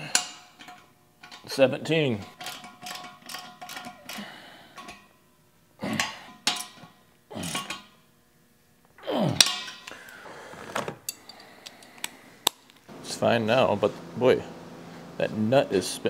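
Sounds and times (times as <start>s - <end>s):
wrench clinking and scraping on metal: 0.0s - 5.2s, 6.0s - 8.0s.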